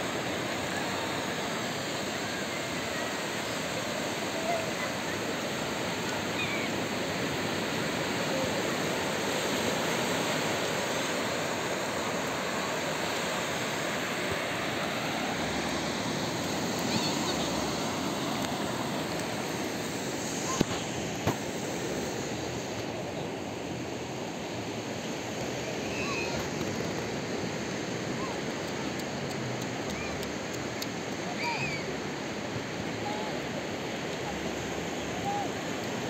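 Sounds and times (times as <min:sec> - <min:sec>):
waves breaking on sandy beach: 0:00.0 - 0:36.0.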